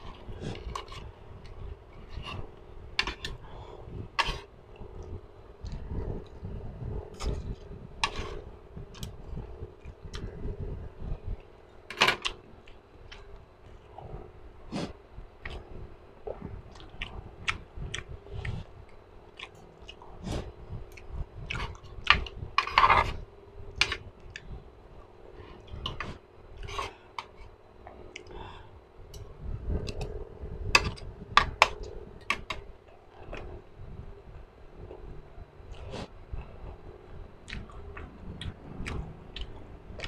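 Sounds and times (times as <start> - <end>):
person chewing: 37.4 - 40.0.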